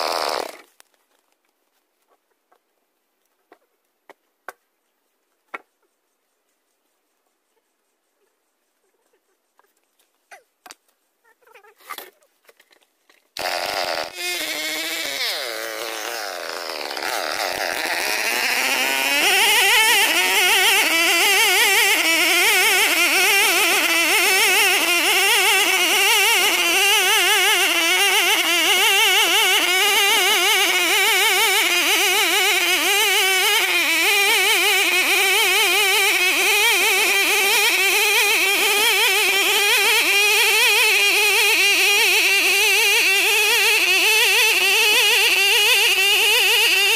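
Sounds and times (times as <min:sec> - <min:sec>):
chainsaw cutting wood: 0:00.0 - 0:00.9, 0:13.4 - 0:46.9.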